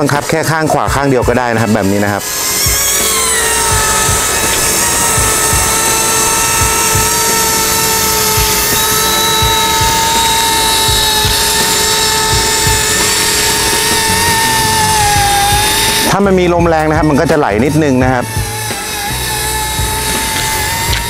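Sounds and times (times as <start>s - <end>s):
toy helicopter rotor whine: 0.0s - 21.0s.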